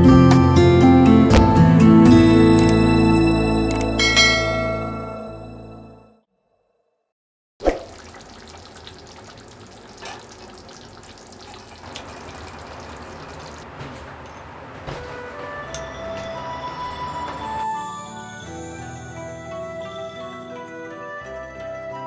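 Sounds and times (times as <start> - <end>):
curry simmering in a pan: 7.8 - 13.6.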